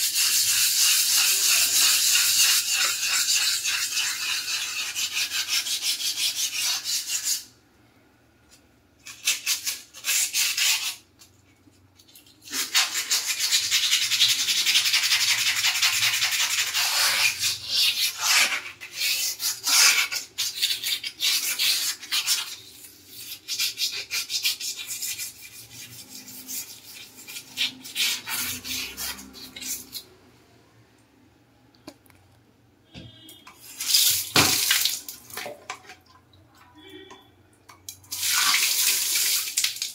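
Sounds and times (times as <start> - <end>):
scrubbing ceramic tiles: 9.1 - 30.1.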